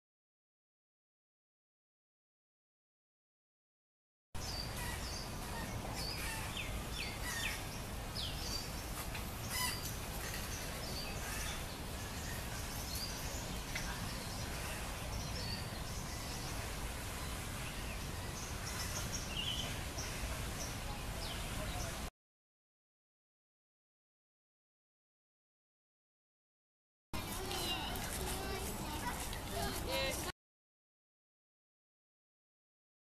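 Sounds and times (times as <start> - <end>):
birds chirping: 4.4 - 22.1, 27.2 - 30.3.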